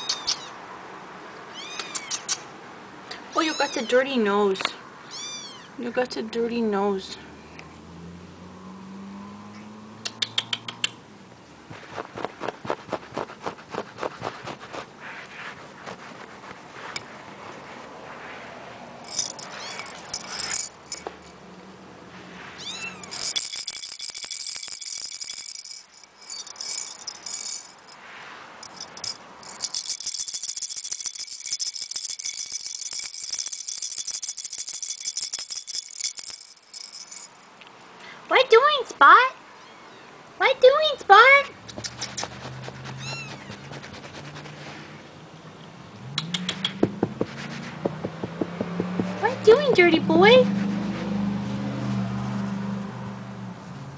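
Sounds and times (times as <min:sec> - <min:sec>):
kitten mewing: 0:00.0 - 0:00.6, 0:01.5 - 0:02.4, 0:03.4 - 0:04.0, 0:05.1 - 0:05.7, 0:42.9 - 0:43.7
high jingling rattle: 0:19.0 - 0:21.7, 0:23.0 - 0:28.0, 0:28.6 - 0:37.7, 0:48.1 - 0:50.4
kitten playing with cable: 0:19.1 - 0:21.1, 0:22.6 - 0:28.0.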